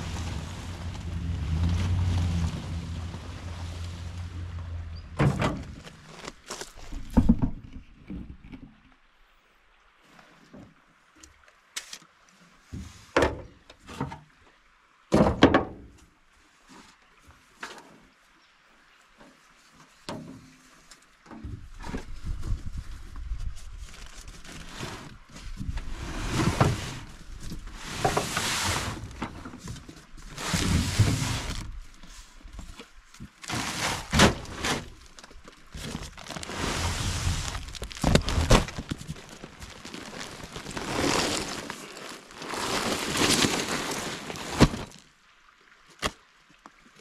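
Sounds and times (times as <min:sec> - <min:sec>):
cardboard box scraping: 0:25.8 - 0:29.2, 0:33.4 - 0:45.0
footsteps on gravel: 0:35.0 - 0:45.0.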